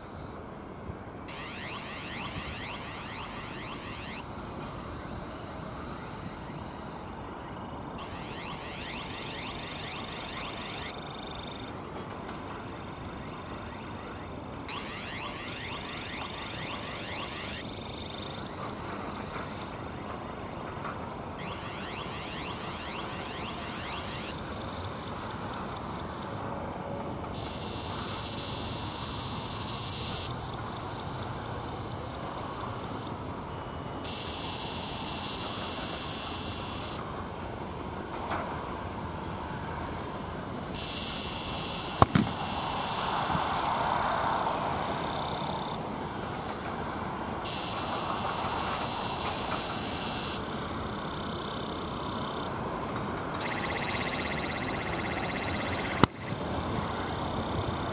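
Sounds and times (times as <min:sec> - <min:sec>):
jet engines taxiing: 0:00.0 - 0:57.9.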